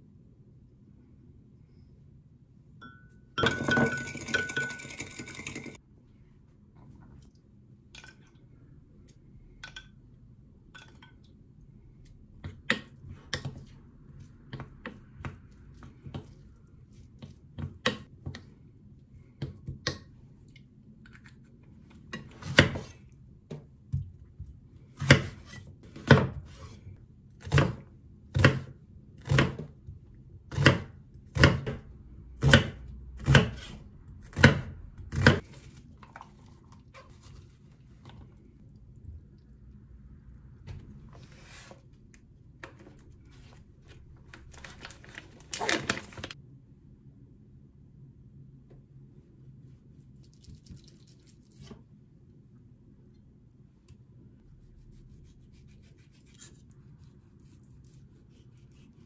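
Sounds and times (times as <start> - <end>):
wooden spoon clinking glass bowl: 2.8 - 5.8
sugar rattling into glass cup: 3.4 - 5.8
knife chopping onion on board: 25.0 - 26.6, 27.4 - 29.8, 30.5 - 35.4.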